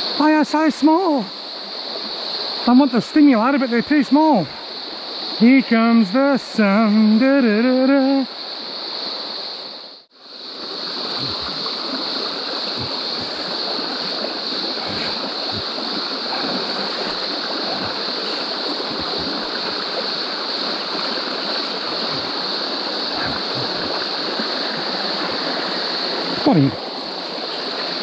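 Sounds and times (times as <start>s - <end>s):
stream rushing over stones: 0.0s - 28.0s.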